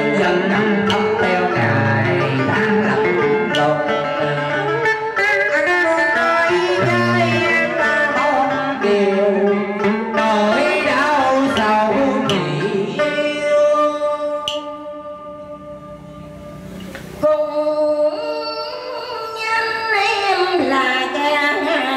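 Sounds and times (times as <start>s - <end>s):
person singing: 0.0s - 15.0s, 17.2s - 21.9s
plucked string accompaniment: 0.0s - 21.9s.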